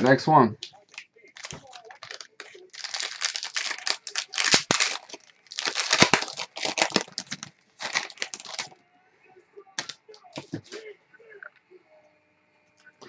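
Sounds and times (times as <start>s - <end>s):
plastic wrapper tearing and crinkling: 0.6s - 8.8s, 9.8s - 10.8s.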